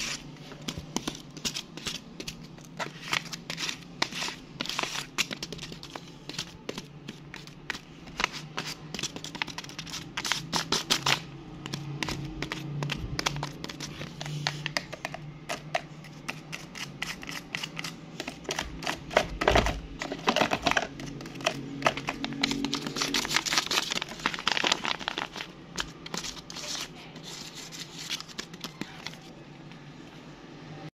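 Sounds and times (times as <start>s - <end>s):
paper crinkling and rustling: 17.2s - 29.4s.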